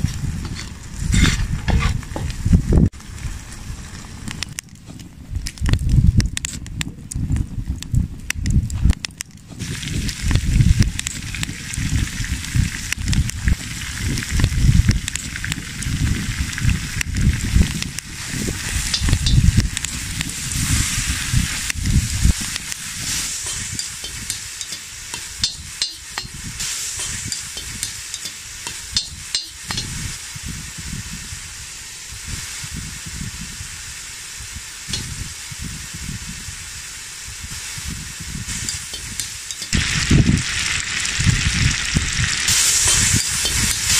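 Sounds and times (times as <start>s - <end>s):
spoon scraping metal pot: 0.4s - 2.0s
meat sizzling in hot oil: 9.1s - 43.9s.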